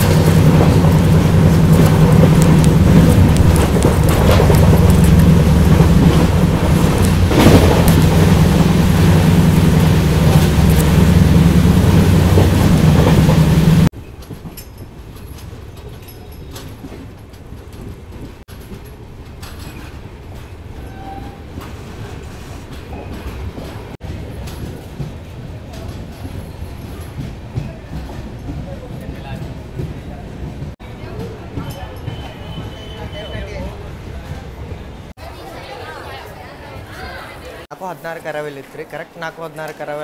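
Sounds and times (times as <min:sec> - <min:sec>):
wind rush: 0:00.0 - 0:13.9
train rolling slowly: 0:00.0 - 0:40.0
train wheels on rails: 0:00.0 - 0:40.0.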